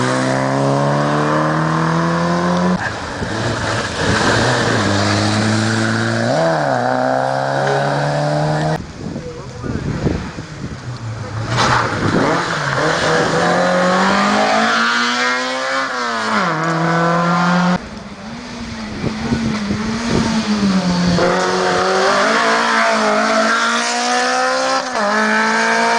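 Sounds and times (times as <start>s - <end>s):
rally car engine revving past: 11.3s - 17.8s, 18.4s - 25.9s.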